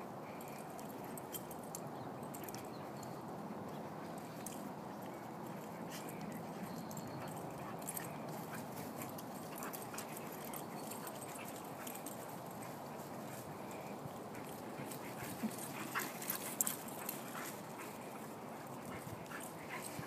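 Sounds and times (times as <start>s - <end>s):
steady outdoor hiss: 0.0s - 20.0s.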